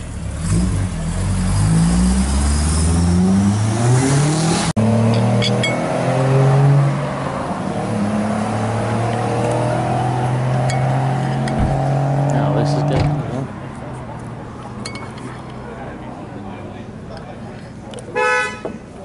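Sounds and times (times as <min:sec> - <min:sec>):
car engine accelerating hard: 0:00.0 - 0:13.6.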